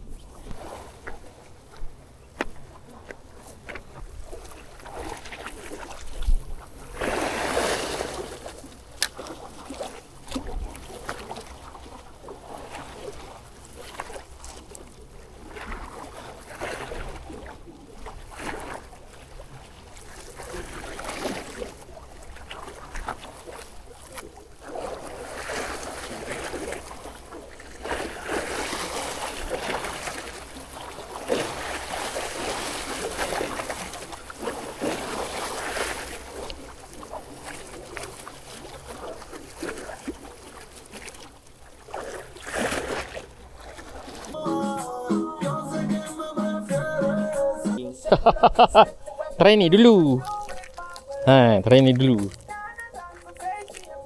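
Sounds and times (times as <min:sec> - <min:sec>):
waves splashing against seawall: 0:00.0 - 0:54.0
wind rumble on microphone: 0:06.0 - 0:06.9.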